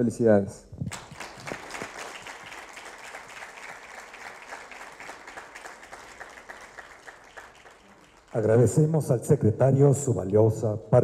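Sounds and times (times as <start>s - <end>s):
audience applause: 0.9s - 8.9s.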